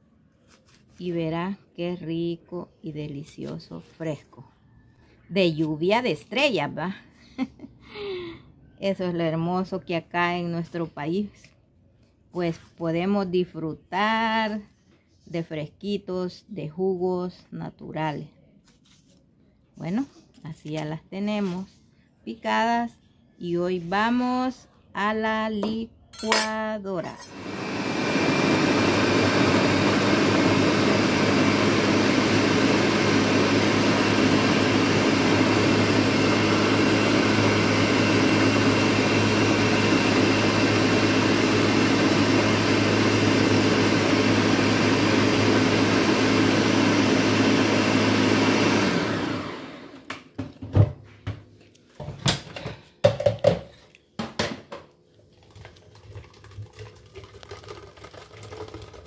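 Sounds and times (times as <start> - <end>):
blender running: 27.2 - 50.1
blender jug knocks and clatters: 52.0 - 59.0.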